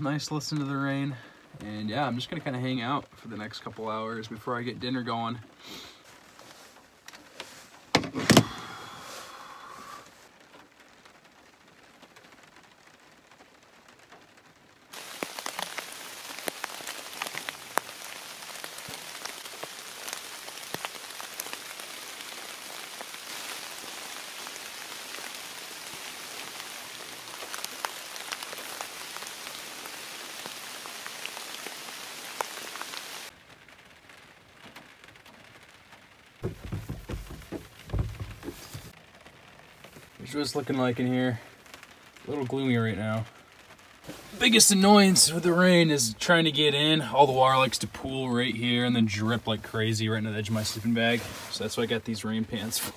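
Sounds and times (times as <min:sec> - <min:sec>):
heavy rain on truck: 0:00.0 - 0:52.9
low rumbling thumps: 0:36.4 - 0:39.0.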